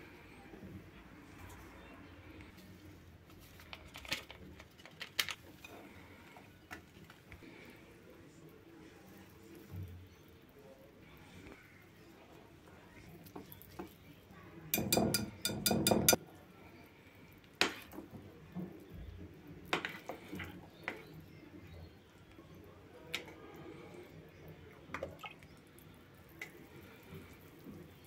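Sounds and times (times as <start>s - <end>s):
whisk clinking against glass bowl: 14.7s - 16.2s
utensil clinks on glass bowl: 14.8s - 16.2s.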